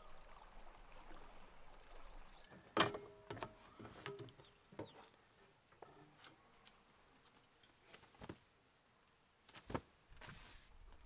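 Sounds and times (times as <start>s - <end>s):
soft rustle: 5.2s - 11.0s.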